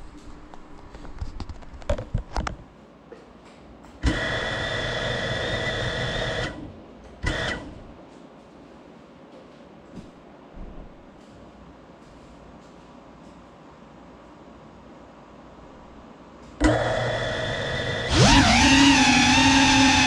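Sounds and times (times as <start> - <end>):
drone motors whining: 16.6 - 20.0.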